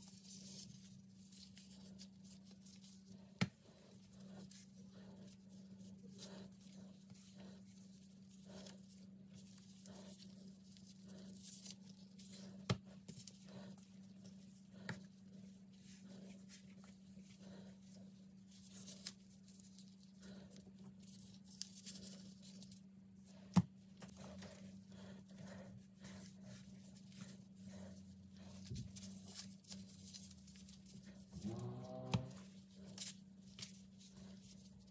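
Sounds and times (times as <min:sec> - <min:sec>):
dough handling noise: 0:00.0 - 0:34.9
plastic gloves rustling: 0:00.0 - 0:34.9
steady low hum: 0:00.0 - 0:34.9.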